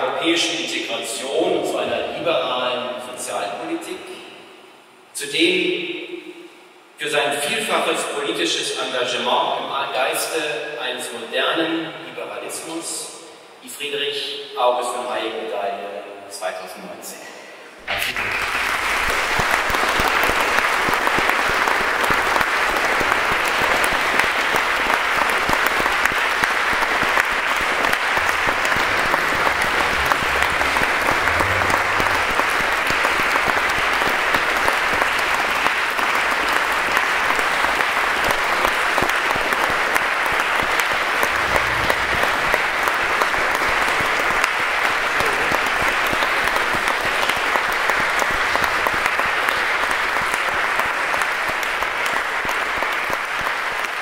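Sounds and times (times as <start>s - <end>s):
audience applauding: 17.8s - 54.0s.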